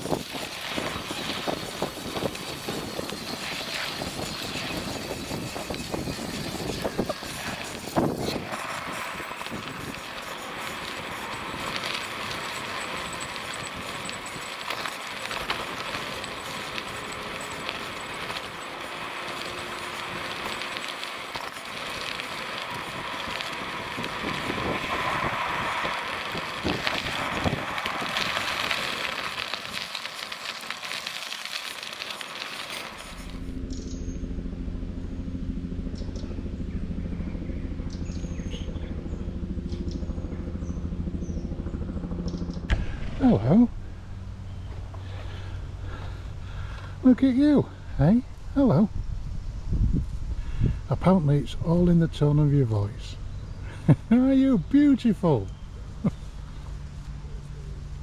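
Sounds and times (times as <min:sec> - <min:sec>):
tyres rolling on dirt: 0:00.0 - 0:33.5
bike knocking and rattling: 0:00.0 - 0:34.0.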